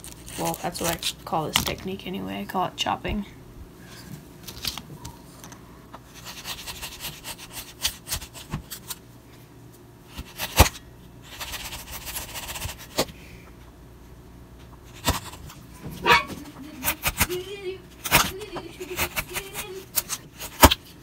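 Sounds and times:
wood chips cracking: 0.0s - 1.7s
knife scraping wood: 6.1s - 9.0s, 10.1s - 13.1s, 14.8s - 21.0s.

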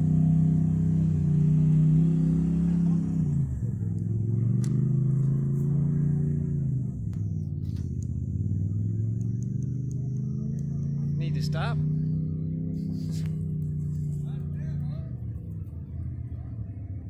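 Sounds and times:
engine idling: 3.0s - 17.0s.

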